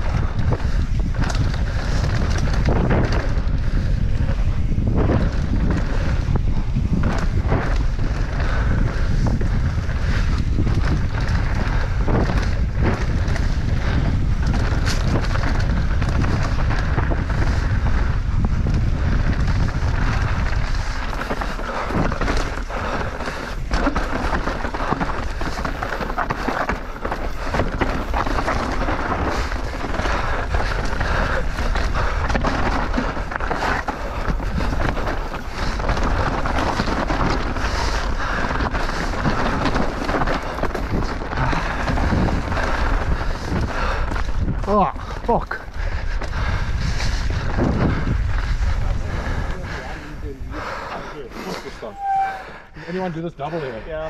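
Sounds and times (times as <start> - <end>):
bike knocks and rattles: 0.0 - 45.6
wind buffeting microphone: 0.0 - 54.0
tyres crunching over dirt and stones: 9.7 - 46.4.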